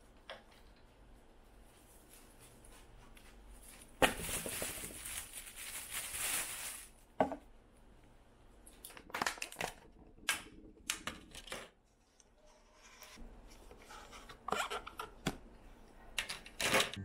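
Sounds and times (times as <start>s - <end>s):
plastic bag rustling: 3.5s - 7.2s.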